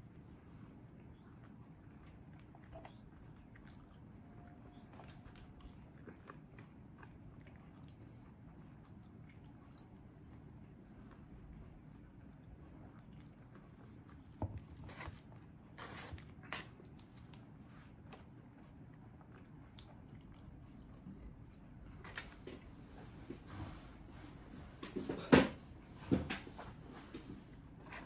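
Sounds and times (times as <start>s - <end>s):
low steady background hum: 0.0s - 28.0s
chewing mouth clicks: 1.0s - 14.4s.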